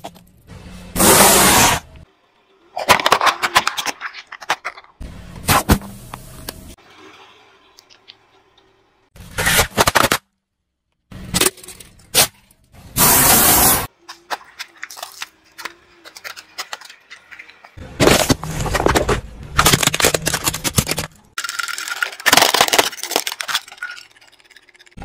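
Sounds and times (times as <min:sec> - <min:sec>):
loud hiss: 0:13.0 - 0:13.9
objects crunching under car tyre: 0:14.1 - 0:21.4.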